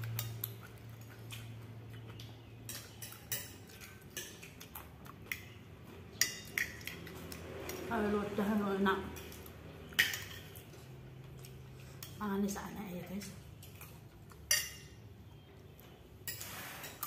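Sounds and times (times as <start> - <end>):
metal spoon clinking against bowl: 6.2 - 7.1, 9.2 - 10.6, 14.5 - 15.0.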